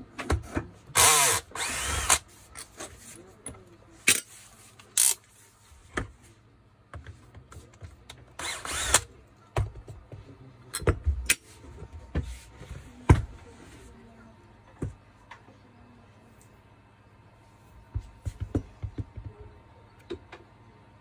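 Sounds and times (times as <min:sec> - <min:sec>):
cordless drill spinning: 0:01.0 - 0:02.2, 0:08.4 - 0:09.0.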